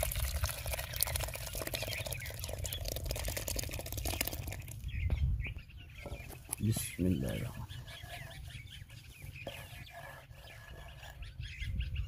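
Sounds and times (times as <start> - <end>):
milk pouring with crackles: 0.0 - 4.8.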